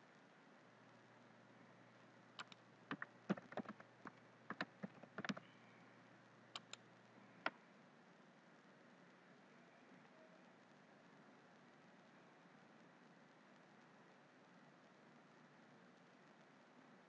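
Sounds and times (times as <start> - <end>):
keyboard keys clicking: 2.4 - 5.4, 6.6 - 6.8.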